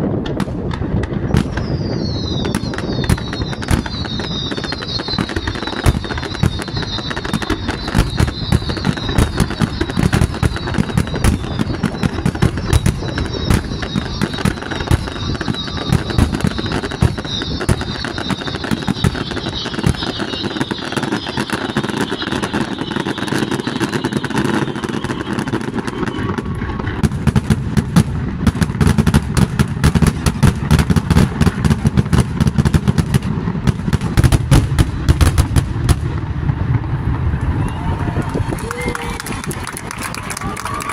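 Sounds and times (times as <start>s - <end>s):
fireworks bangs and booms: 0.0s - 40.9s
fireworks crackling and popping: 0.0s - 40.9s
fireworks hiss: 0.9s - 27.0s.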